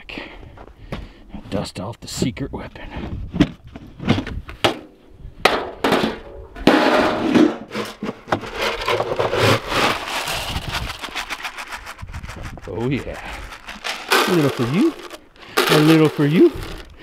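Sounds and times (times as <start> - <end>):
scoop rustling through grain: 8.6 - 16.9.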